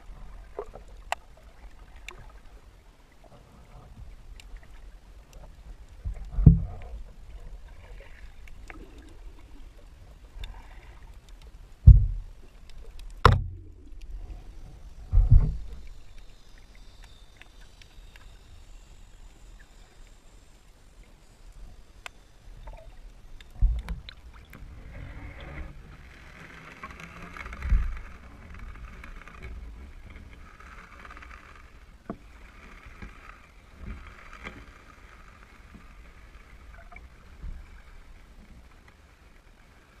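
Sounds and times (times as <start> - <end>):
muffled water sloshing: 0.0 - 19.8
low thumps: 11.8 - 12.2, 13.2 - 14.0.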